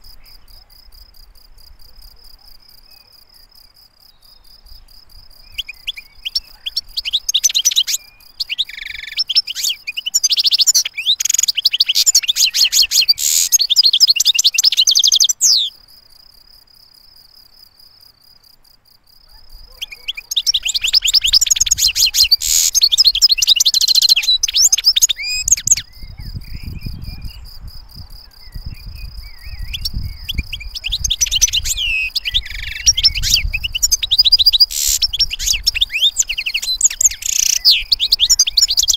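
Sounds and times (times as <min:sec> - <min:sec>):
finch singing: 0:05.4 - 0:15.8, 0:19.3 - 0:38.9.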